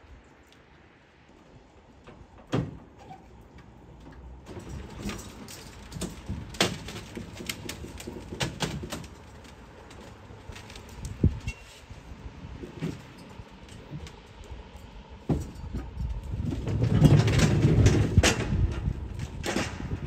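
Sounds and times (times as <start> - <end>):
trailer knocks and clunks: 1.7 - 14.4, 15.0 - 20.0.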